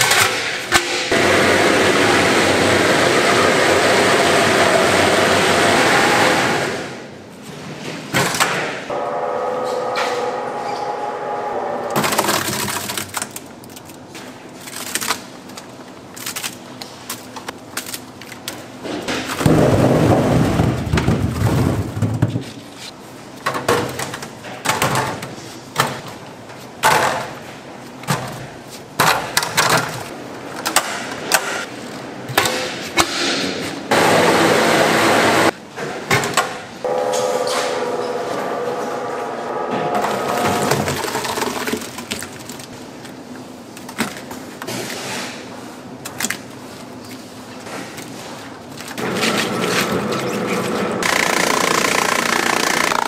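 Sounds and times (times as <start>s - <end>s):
grinding machine hum: 8.9s - 12.0s, 33.9s - 35.5s, 36.8s - 41.7s.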